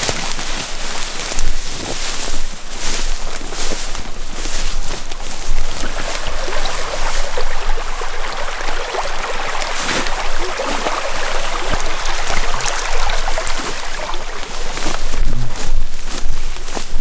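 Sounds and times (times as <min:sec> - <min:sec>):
footsteps through tall grass: 0:00.0 - 0:17.0
creek running: 0:03.2 - 0:15.7.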